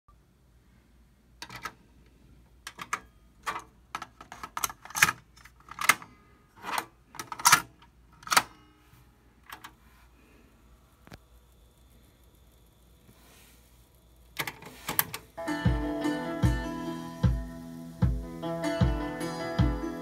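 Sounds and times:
cassette deck keys clacking: 1.4 - 1.8, 2.6 - 8.6, 14.4 - 15.4.

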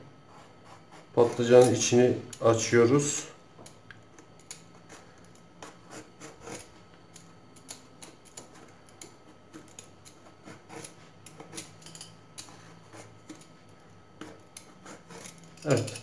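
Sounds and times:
vegetable peeler scraping: 0.3 - 2.6, 4.7 - 6.8, 8.0 - 13.5, 14.2 - 16.0.

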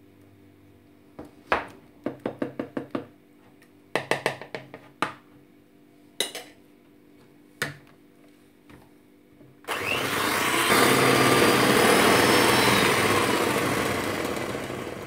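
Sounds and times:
electric hand mixer whining: 9.7 - 15.0.

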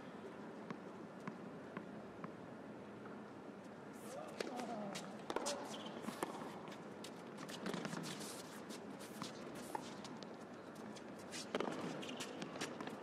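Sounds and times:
racket hitting tennis ball: 4.3 - 6.6.

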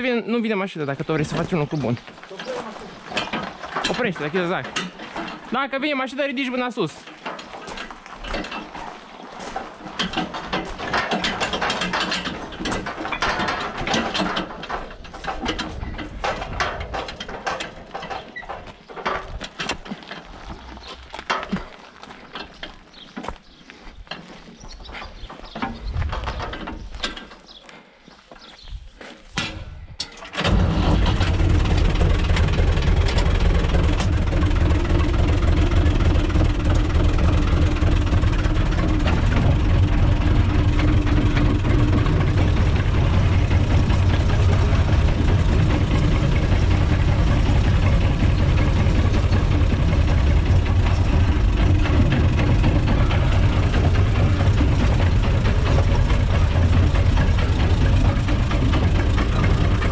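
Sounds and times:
tractor diesel engine running: 0.0 - 28.4, 29.4 - 59.9.

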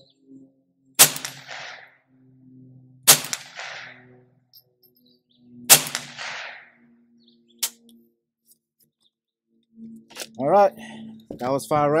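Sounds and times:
rifle shots with echo: 1.0 - 2.0, 3.0 - 4.2, 5.7 - 6.9.

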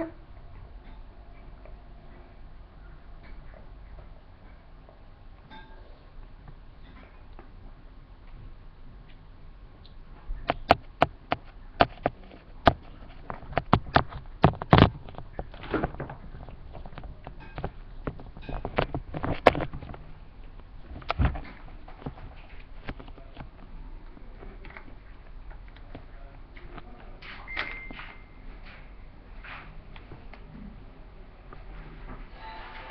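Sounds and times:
handling noise against microphone: 10.5 - 20.2, 20.8 - 23.6.

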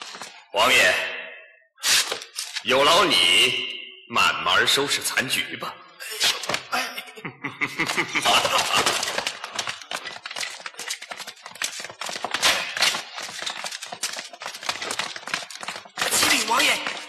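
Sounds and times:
rapid clatter of knocks: 8.3 - 17.0.

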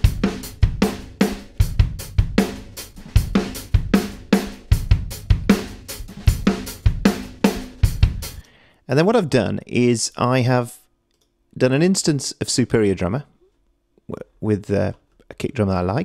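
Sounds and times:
drum kit loop: 0.0 - 8.5.

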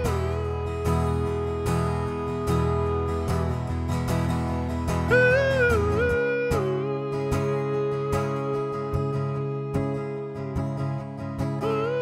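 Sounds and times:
person singing ooh: 0.0 - 3.3, 5.1 - 11.0
acoustic guitar strumming: 0.0 - 12.0.

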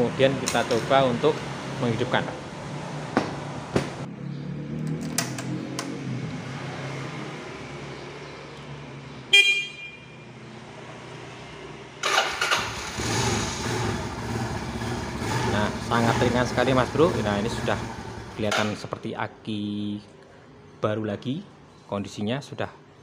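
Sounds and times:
motorcycle horn beep: 9.3 - 10.2
electric starter cranking: 12.0 - 14.0
motorcycle engine running: 12.8 - 18.4.

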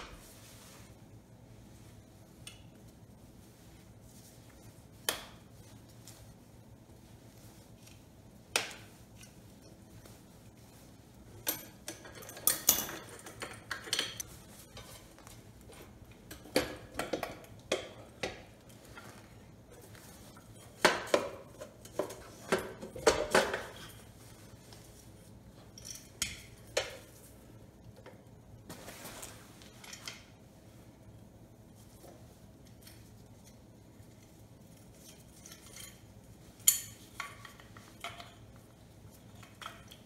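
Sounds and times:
metal clinks and clatters: 11.4 - 15.1, 34.8 - 38.6.

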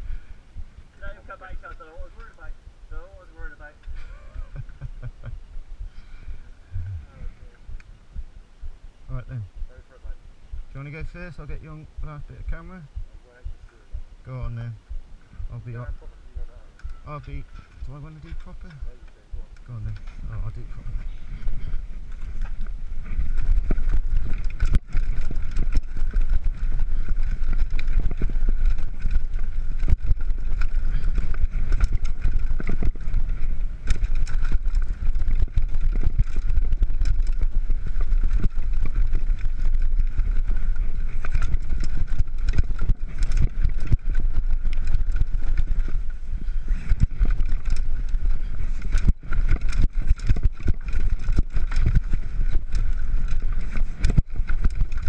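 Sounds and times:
wind rumble on microphone: 0.0 - 55.0
bike frame and chain rattling: 19.8 - 55.0
tyres rolling over dirt: 20.0 - 55.0.

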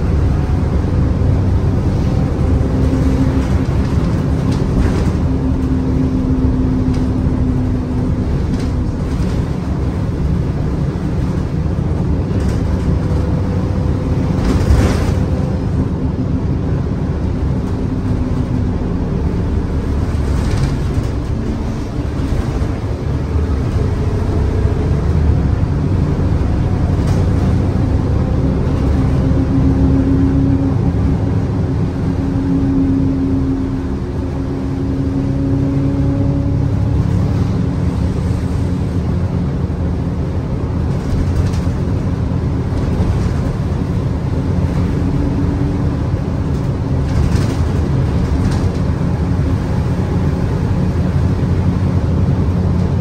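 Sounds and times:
bus engine rumble: 0.0 - 53.0
road noise: 0.0 - 53.0
body knocks and rattles: 46.4 - 49.1.

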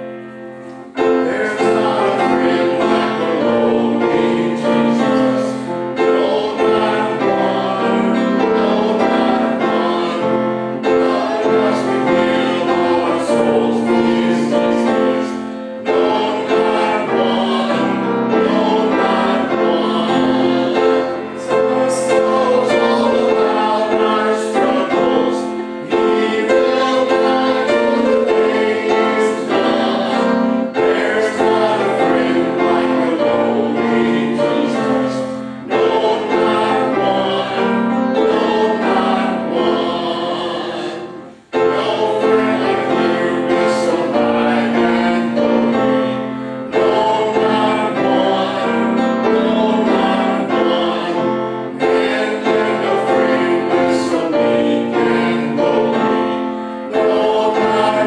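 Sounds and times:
choir singing: 0.0 - 58.0
piano accompaniment: 0.0 - 58.0.

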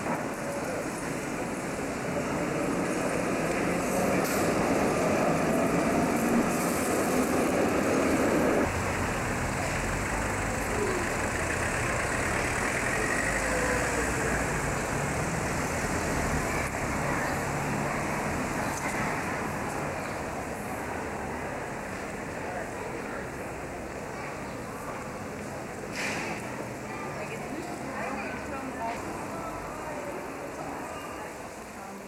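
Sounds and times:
low rumble of street noise: 0.0 - 32.0
tram rolling past on track: 0.0 - 32.0.

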